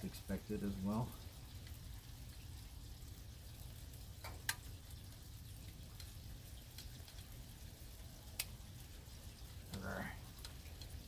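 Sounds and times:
quiet steady hiss: 0.0s - 11.0s
faint ticks: 5.9s - 7.3s, 8.3s - 8.6s.

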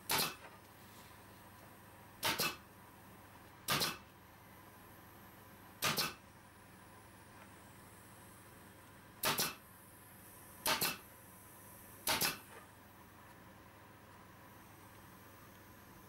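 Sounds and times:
nail gun firing into wood: 0.1s - 0.4s, 2.2s - 2.6s, 3.7s - 4.0s, 5.8s - 6.2s, 9.2s - 9.6s, 10.6s - 11.0s, 12.0s - 12.5s.

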